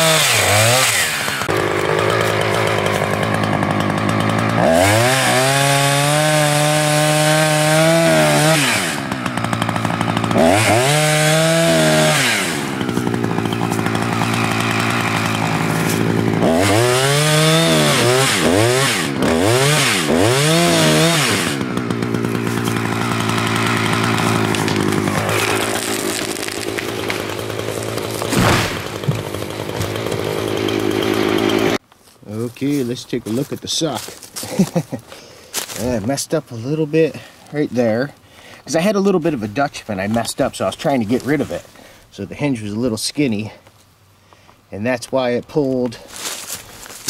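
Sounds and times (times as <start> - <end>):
chainsaw revving: 0.0 - 31.8.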